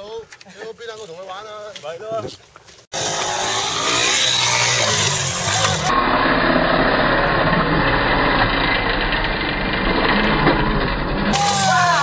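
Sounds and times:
dirt bike engines revving: 2.9s - 12.0s.

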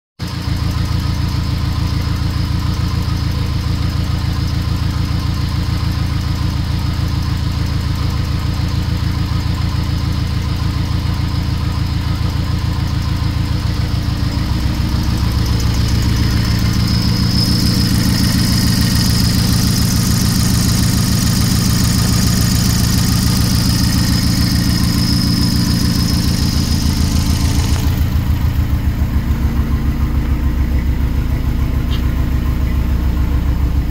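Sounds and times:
car engine idling: 0.2s - 33.9s
turbo whine: 11.6s - 33.9s.

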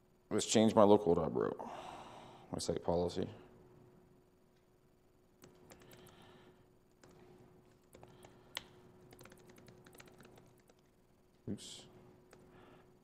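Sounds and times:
faint steady hum: 0.0s - 13.0s
faint keyboard typing: 5.4s - 6.4s, 7.0s - 11.0s, 12.2s - 12.9s.

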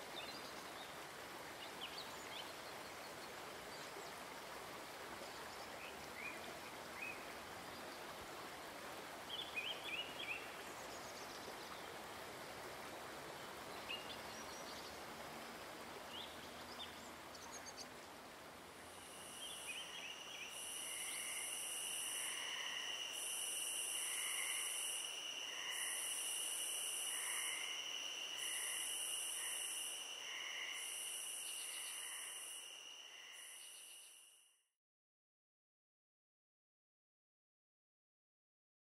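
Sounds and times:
steady hiss: 16.9s - 34.4s
insect chorus buzzing: 18.7s - 34.5s.

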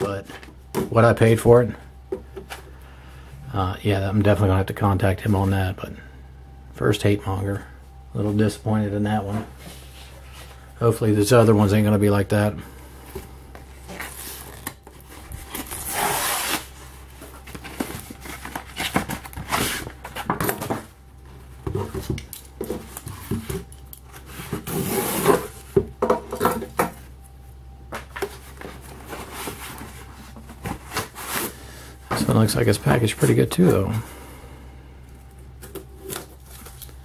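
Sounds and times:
cardboard rustling and scraping: 13.2s - 25.8s, 27.9s - 34.1s
cardboard ripping: 13.9s - 16.8s, 17.6s - 20.3s.

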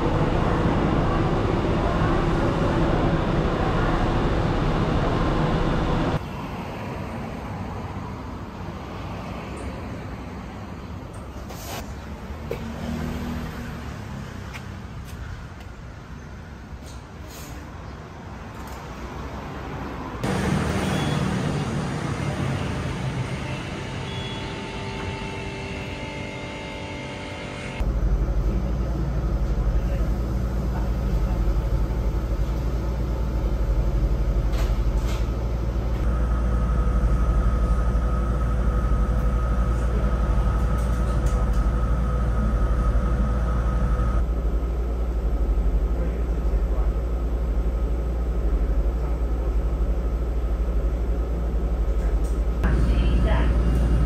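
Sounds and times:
bus cabin equipment hum: 0.0s - 6.3s, 20.2s - 54.0s
faint high whine: 22.2s - 27.8s.

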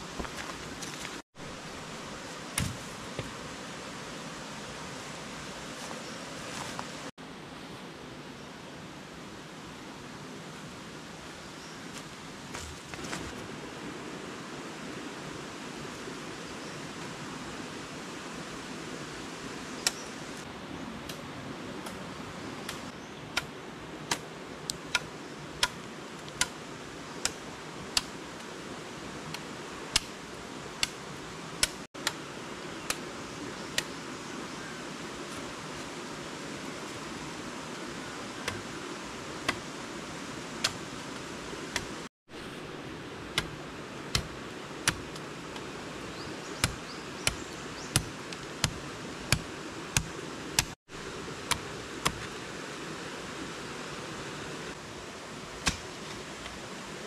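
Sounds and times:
steady background hiss: 0.0s - 57.0s
machete chopping wooden pole: 2.6s - 3.3s, 44.2s - 45.1s, 46.6s - 50.8s, 55.6s - 55.9s.

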